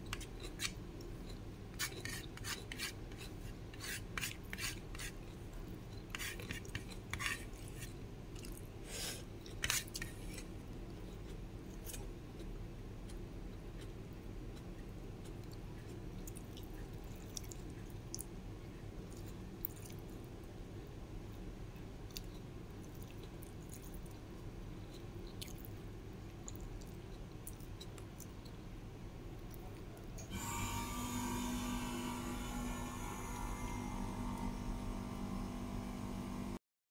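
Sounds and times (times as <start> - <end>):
person chewing food: 0.0 - 18.4, 19.0 - 20.3, 21.7 - 28.7
low steady hum: 0.0 - 36.6.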